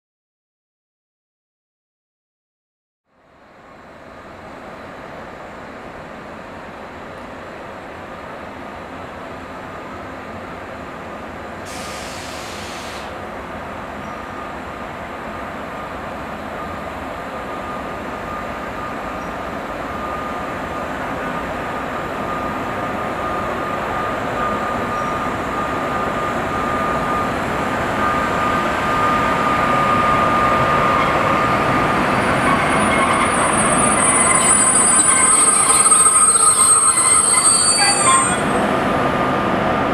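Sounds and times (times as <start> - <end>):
freight train rumble: 3.2 - 39.9
steady high tone: 15.7 - 38.9
high squealing tones: 32.1 - 38.7.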